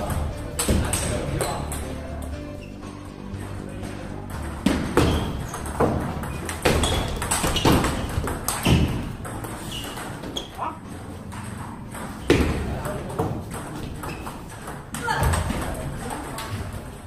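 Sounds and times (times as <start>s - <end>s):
ping pong ball hits: 0.0s - 2.0s, 4.3s - 16.8s
ball bouncing on table: 4.3s - 10.6s, 11.2s - 16.8s.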